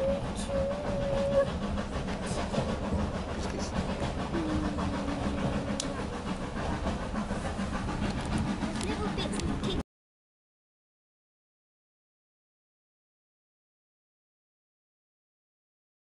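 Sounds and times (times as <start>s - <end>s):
train carriage rumbling on track: 0.0s - 9.8s.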